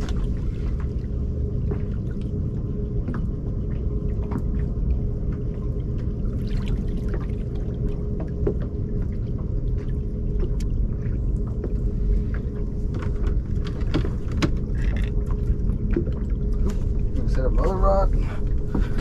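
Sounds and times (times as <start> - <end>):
wind and water rumble: 0.0 - 19.0
small knocks and clicks: 12.9 - 16.8.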